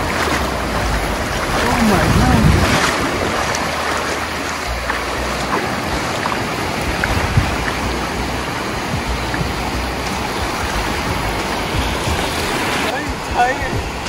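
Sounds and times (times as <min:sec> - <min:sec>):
waves breaking in shallows: 0:00.0 - 0:14.0.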